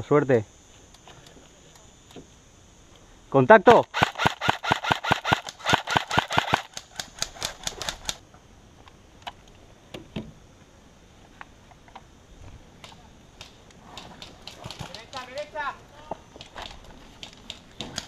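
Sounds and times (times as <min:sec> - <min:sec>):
airsoft gun rapid shots: 0:03.9 - 0:08.2.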